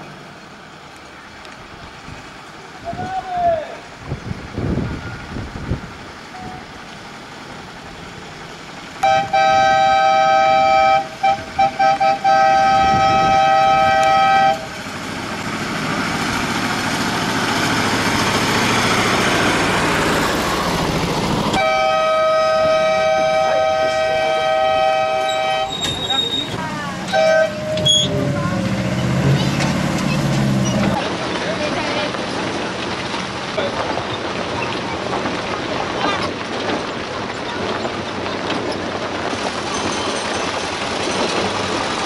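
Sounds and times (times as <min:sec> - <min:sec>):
short horn toots: 0:09.0 - 0:14.7
two-note horn blowing: 0:09.0 - 0:14.7, 0:21.6 - 0:25.8, 0:27.1 - 0:28.2.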